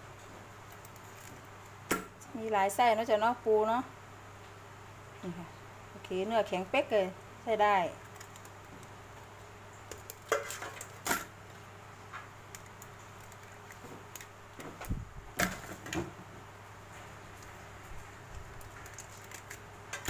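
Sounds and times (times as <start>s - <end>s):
crab shells clicking on steel: 12.4s - 14.4s, 18.4s - 20.0s.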